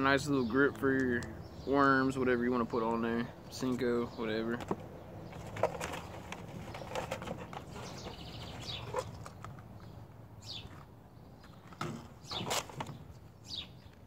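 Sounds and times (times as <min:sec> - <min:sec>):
birds chirping: 0:00.0 - 0:14.0
plastic packaging rustling: 0:05.3 - 0:09.4.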